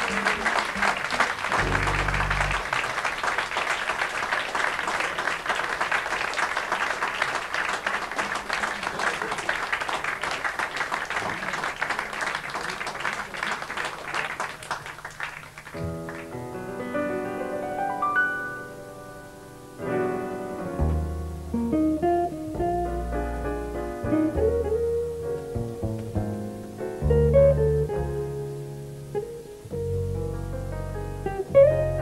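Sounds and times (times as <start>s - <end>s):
audience applauding: 0.0s - 16.4s
band low sustained notes: 1.5s - 2.7s
piano playing: 1.5s - 2.8s, 15.8s - 32.0s.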